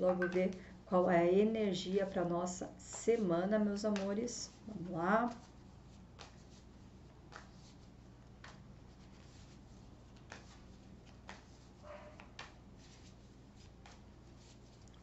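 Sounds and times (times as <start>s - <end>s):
low room hum: 0.0s - 15.0s
cards shuffling: 5.3s - 14.8s.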